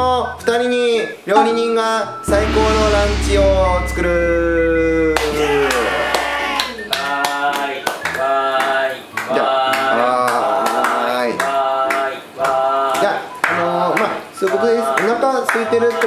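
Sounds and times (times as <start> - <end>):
hand clapping: 6.6 - 16.0.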